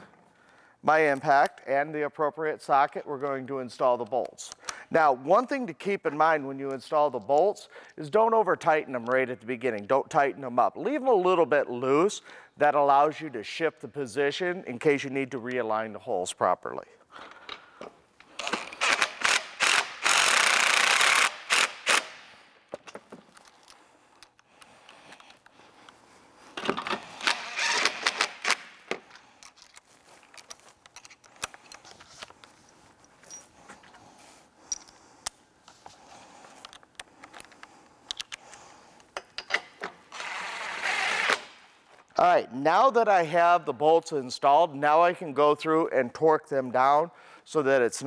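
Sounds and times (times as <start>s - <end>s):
impact driver running: 18.4s - 22.3s, 27.0s - 28.7s.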